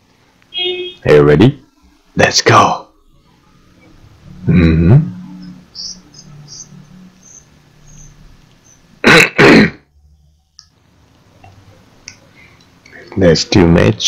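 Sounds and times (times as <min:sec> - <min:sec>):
person clearing throat: 0:04.5 - 0:05.1, 0:09.0 - 0:09.9.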